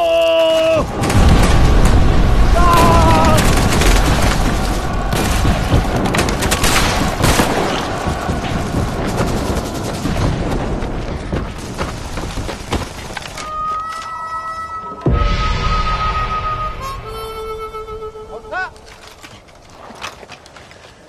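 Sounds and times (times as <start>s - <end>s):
explosion booms: 0.8s - 12.6s, 15.1s - 17.1s
gunshots: 0.8s - 13.4s
heavy low rumble: 0.9s - 13.2s.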